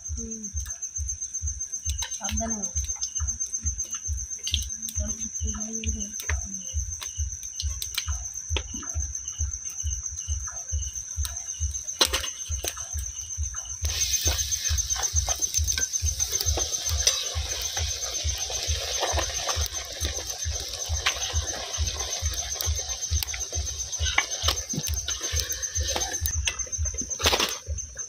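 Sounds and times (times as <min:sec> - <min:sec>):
high insect trill: 0:00.0 - 0:28.0
water dripping from trees: 0:00.0 - 0:28.0
rain hissing: 0:11.2 - 0:28.0.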